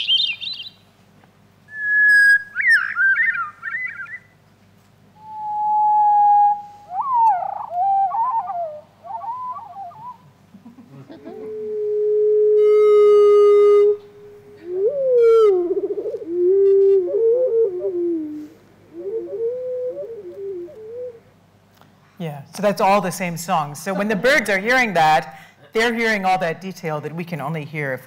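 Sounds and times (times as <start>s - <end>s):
slowed-down birdsong: 0.0s - 0.9s, 1.7s - 4.4s, 5.2s - 10.3s.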